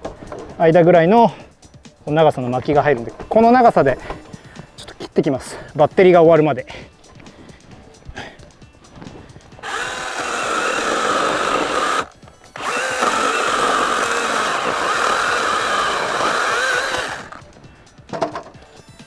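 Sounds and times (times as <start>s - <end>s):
chainsaw cutting wood: 9.6s - 17.4s.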